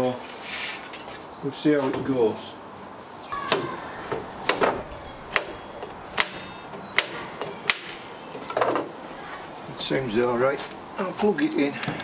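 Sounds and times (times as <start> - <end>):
wooden and metallic knocks: 3.4 - 8.9.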